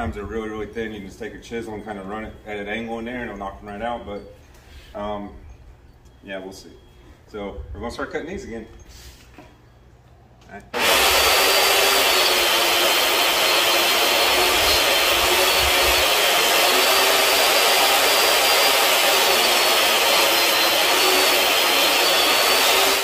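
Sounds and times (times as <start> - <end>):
table saw cutting wood: 10.8 - 23.0.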